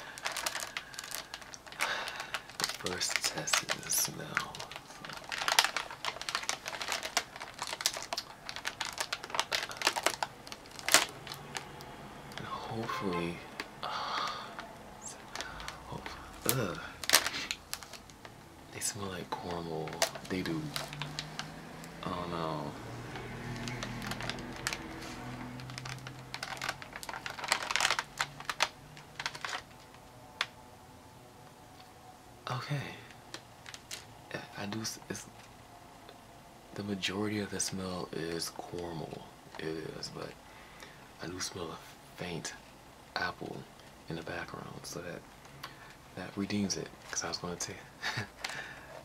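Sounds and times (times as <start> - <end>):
plastic packaging crinkling: 0.0 - 30.5, 33.1 - 35.5, 43.6 - 49.0.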